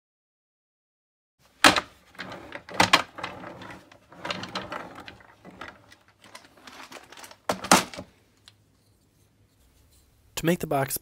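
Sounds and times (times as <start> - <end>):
wood scraping and rattling: 1.5 - 8.2.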